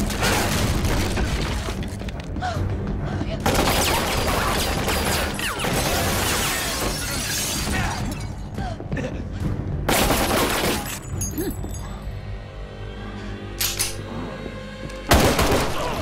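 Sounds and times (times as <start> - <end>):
dramatic music score: 0.0 - 16.0
glass shattering crash: 5.4 - 8.4.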